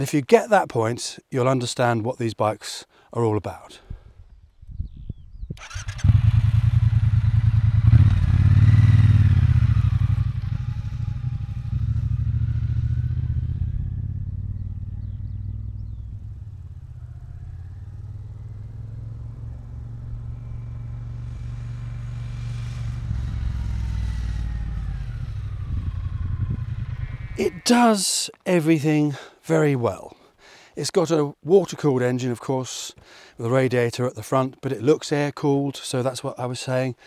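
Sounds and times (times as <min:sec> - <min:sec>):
motorcycle engine revving: 0:05.6 - 0:27.7.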